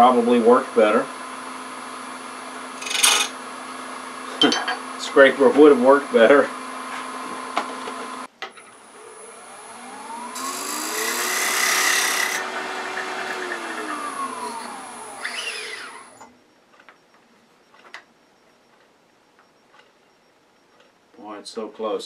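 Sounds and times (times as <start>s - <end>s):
wood lathe motor whine: 0.0s - 16.3s
tool cutting spinning wood hiss: 1.3s - 3.4s, 8.9s - 16.3s.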